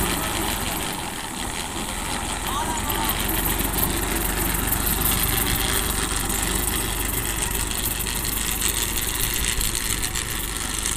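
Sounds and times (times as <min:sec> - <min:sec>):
tractor diesel engine running: 0:00.0 - 0:10.9.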